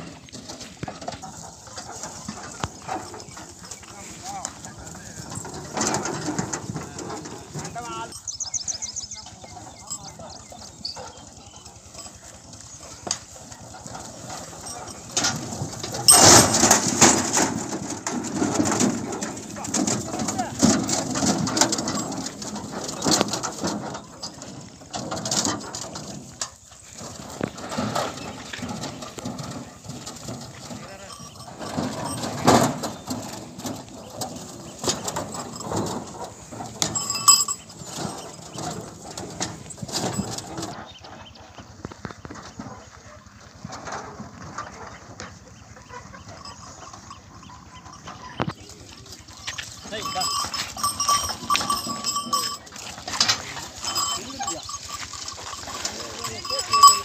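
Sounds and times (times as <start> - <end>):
cart rattling and clattering: 0.0 - 57.0
hoof steps: 0.0 - 57.0
ringing knock: 36.8 - 37.7, 49.4 - 52.7, 53.8 - 57.0.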